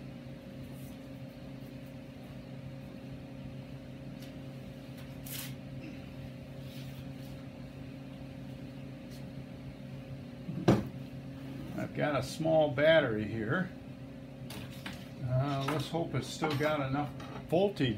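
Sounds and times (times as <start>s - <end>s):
low electrical hum: 0.0s - 17.9s.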